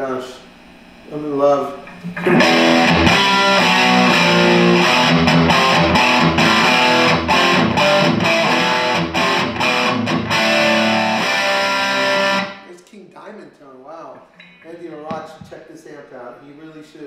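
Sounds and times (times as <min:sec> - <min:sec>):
overdriven electric guitar chords: 0:01.9 - 0:12.7.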